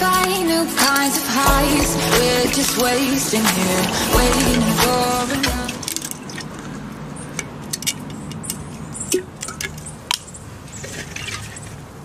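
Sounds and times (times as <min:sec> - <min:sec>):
water dripping and splashing: 0:02.2 - 0:06.7.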